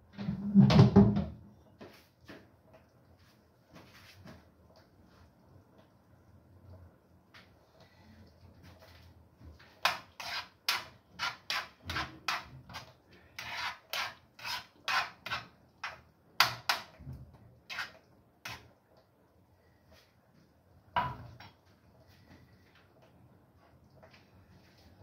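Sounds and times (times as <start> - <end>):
spoon scraping a frying pan: 9.8 - 16.9, 17.7 - 18.7.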